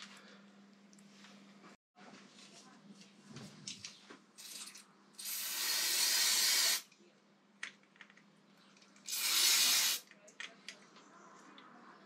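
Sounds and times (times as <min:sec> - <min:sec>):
aerosol can spraying: 0:04.4 - 0:06.8, 0:09.1 - 0:10.0.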